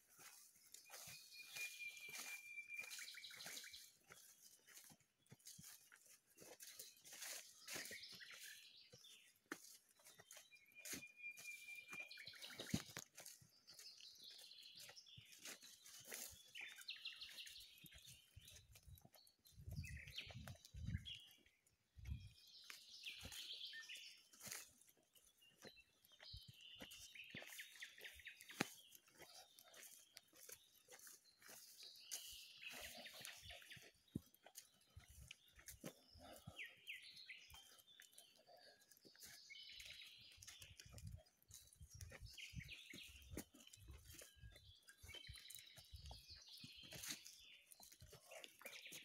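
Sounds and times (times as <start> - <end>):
leaves and grass rustling: 0.0 - 13.8, 14.8 - 18.9, 22.0 - 25.7, 26.5 - 36.0, 37.6 - 49.0
faint footsteps: 0.0 - 49.0
bird chirps: 0.2 - 5.7, 6.6 - 21.4, 22.1 - 49.0.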